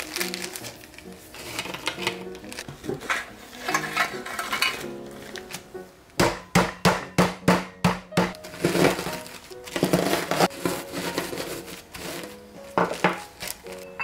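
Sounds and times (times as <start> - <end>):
rolling pin rolling over crumbs: 0.0 - 5.7, 7.5 - 14.0
background music: 0.0 - 14.0
rolling pin whacking cookies in bag: 4.8 - 13.9.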